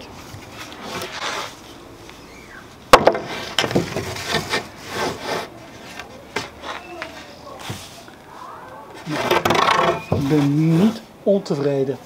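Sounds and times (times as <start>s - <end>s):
plank scraping across wood: 0.4s - 1.6s, 2.9s - 8.1s, 8.9s - 11.1s
wooden plank knocking on boards: 2.9s - 4.4s, 9.2s - 10.4s.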